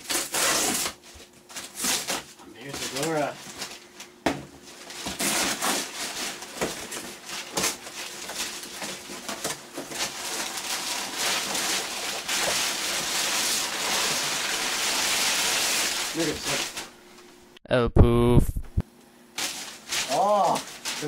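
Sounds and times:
cardboard box being ripped open: 0.0 - 2.3, 4.9 - 16.5
packing paper crinkling: 0.0 - 16.9, 19.4 - 21.0.

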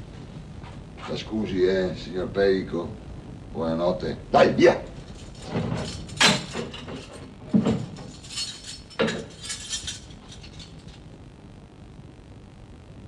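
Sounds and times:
keys jingling: 5.0 - 11.0
cell door clanking shut: 5.4 - 8.1.

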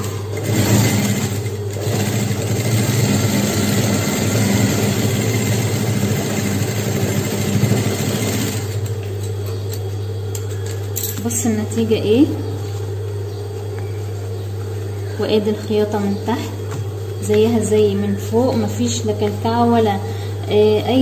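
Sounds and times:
industrial sewing machine stitching: 0.0 - 8.9
steady low hum: 0.0 - 21.0.

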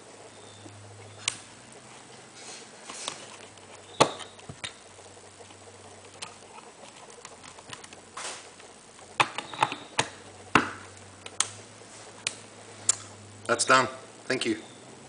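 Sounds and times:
wire connectors clicking: 8.6 - 11.6.

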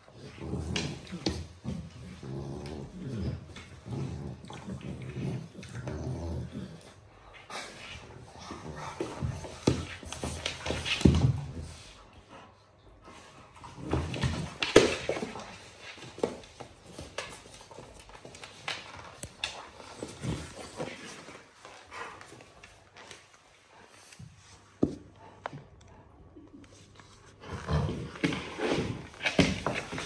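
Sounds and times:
dogs play growling: 0.0 - 30.0
scuffling and knocks on floor: 28.2 - 30.0.

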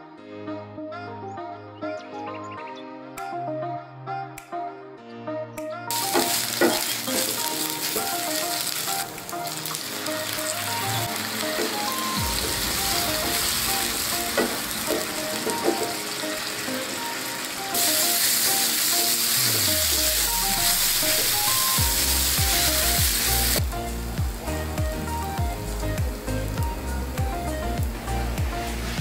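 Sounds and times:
light background music: 0.0 - 29.0
food sizzling in a frying pan: 5.9 - 29.0.

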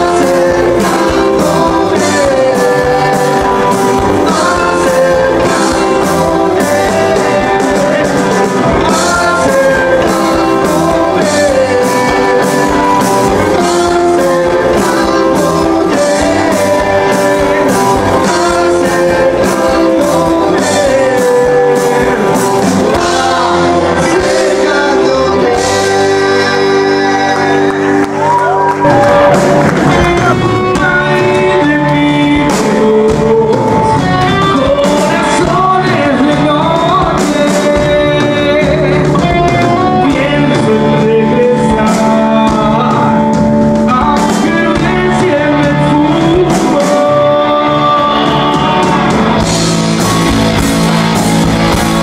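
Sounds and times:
drum beat: 0.0 - 41.1
person singing: 0.0 - 50.4
bass guitar: 0.0 - 52.0
electric guitars: 0.0 - 52.0.

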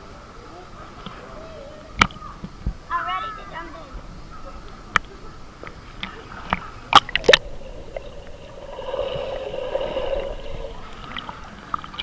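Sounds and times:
water splashing: 5.7 - 12.0
sharp water slaps: 6.0 - 7.5
underwater rushing and bubbling: 6.2 - 12.0.

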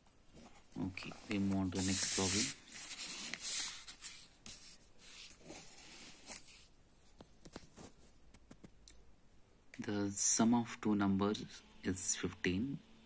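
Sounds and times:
paper rustling and swishing: 0.3 - 6.7.

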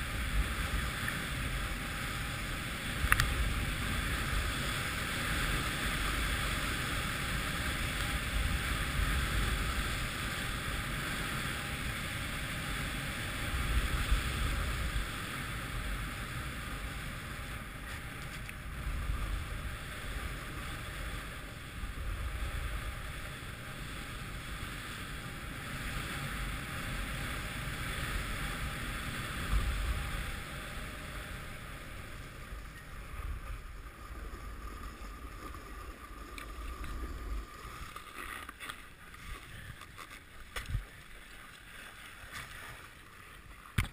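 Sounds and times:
snowboard scraping over snow: 0.0 - 43.9.

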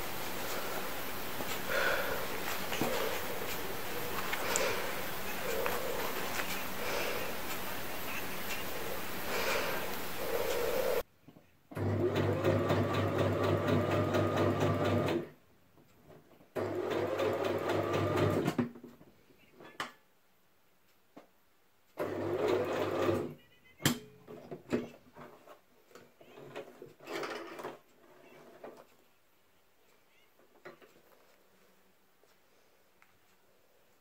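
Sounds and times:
sewing machine stitching: 11.7 - 15.3, 16.6 - 18.6, 22.0 - 23.4.

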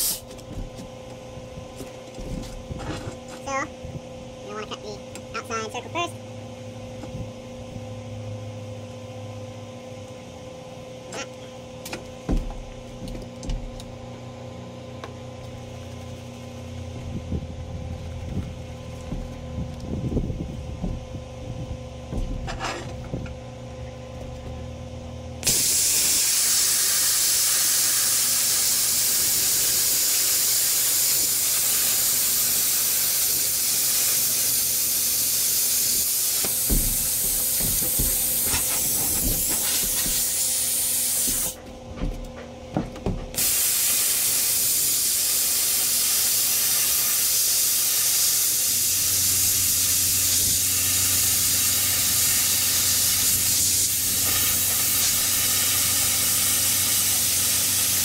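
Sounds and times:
plasma arc hissing: 0.0 - 0.3, 25.4 - 41.6, 43.3 - 58.0
knocks: 36.5 - 40.3.

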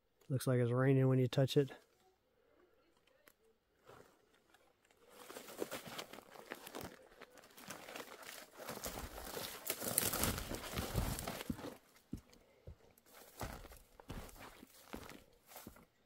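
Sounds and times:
twigs and leaves crackling: 3.2 - 15.8
footfalls on stony ground: 5.1 - 15.8.

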